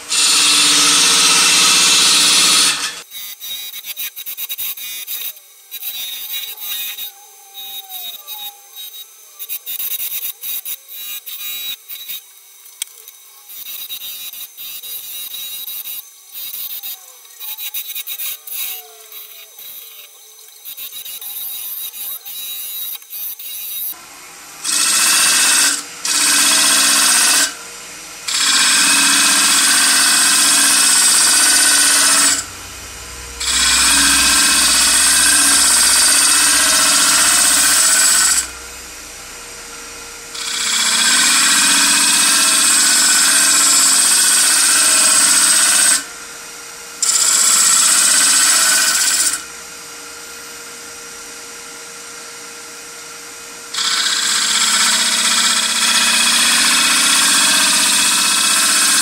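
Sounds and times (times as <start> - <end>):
lathe humming: 0.0 - 3.1, 23.9 - 49.5, 53.2 - 59.0
turning tool scraping wood: 33.4 - 38.6.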